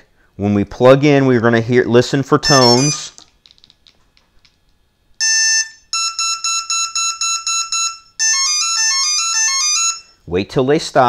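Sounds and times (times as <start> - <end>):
short motor beeps: 2.5 - 3.1, 5.2 - 10.1
motor steady beep: 5.2 - 10.2.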